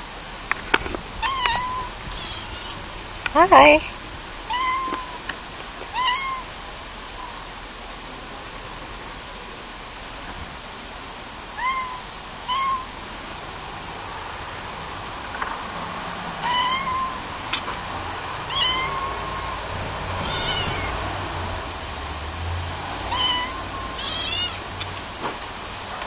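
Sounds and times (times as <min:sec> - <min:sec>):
steady hiss: 0:00.0 - 0:26.0
cat meowing: 0:01.2 - 0:02.8, 0:04.5 - 0:05.2, 0:05.9 - 0:06.5, 0:11.6 - 0:13.0, 0:16.4 - 0:17.3, 0:18.4 - 0:21.1, 0:23.1 - 0:24.7.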